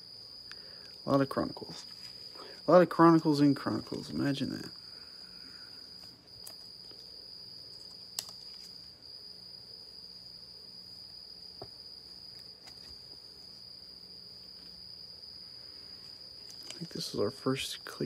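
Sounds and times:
cricket trilling: 0.0s - 18.0s
cards and plastic sleeves rustling: 3.6s - 4.7s, 5.9s - 8.9s, 12.2s - 13.5s, 16.0s - 17.2s.

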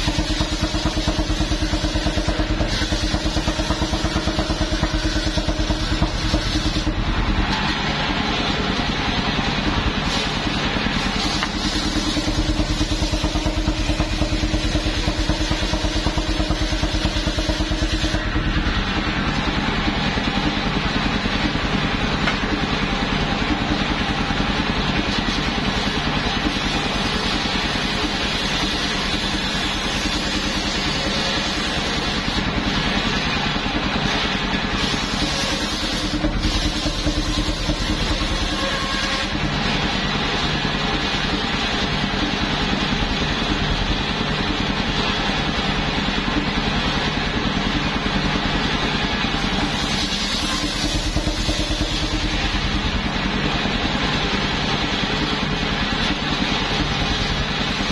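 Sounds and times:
engine running steadily: 0.0s - 57.9s
circular saw ripping planks: 49.6s - 52.8s.

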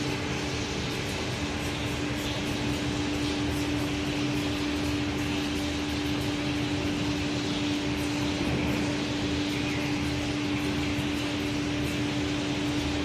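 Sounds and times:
grinding machine humming: 0.0s - 13.0s.

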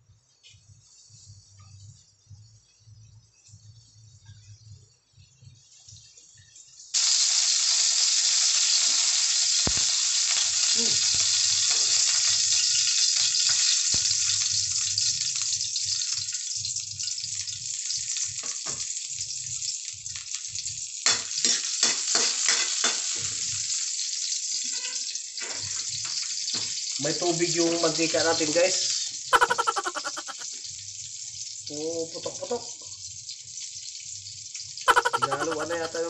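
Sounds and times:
garlic sizzling in oil: 0.3s - 36.0s
oil crackling and popping: 5.9s - 27.2s.

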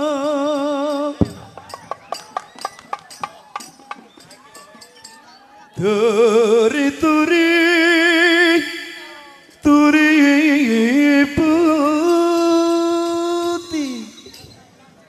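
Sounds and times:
person singing unaccompanied: 0.0s - 2.2s, 5.6s - 14.5s.

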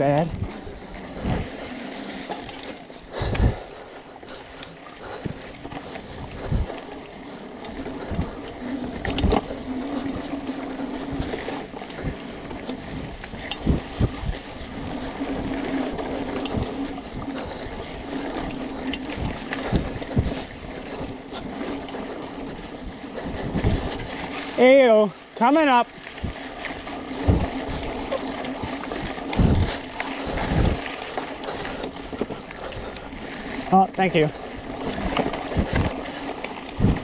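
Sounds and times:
wind on microphone: 0.0s - 3.8s, 5.0s - 24.6s, 26.1s - 37.0s
bike tyres on dirt: 0.0s - 37.0s
steady hum: 8.6s - 11.6s.

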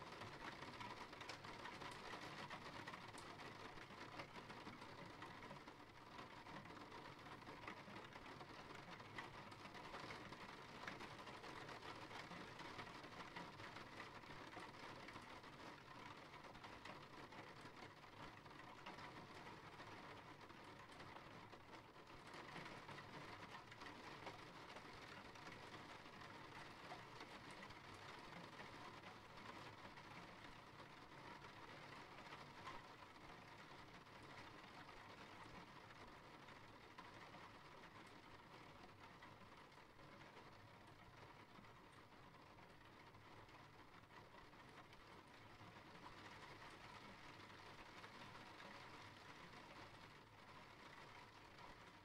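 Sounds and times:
faint steady rain: 0.0s - 52.0s.

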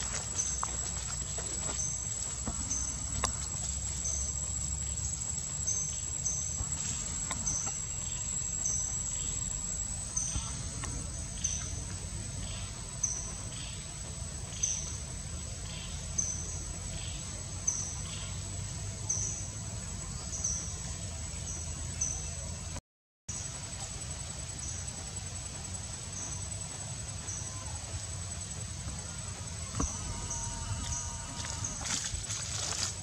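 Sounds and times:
high-pitched insect drone: 0.0s - 20.9s, 23.4s - 33.0s
short insect chirps: 23.3s - 33.0s.

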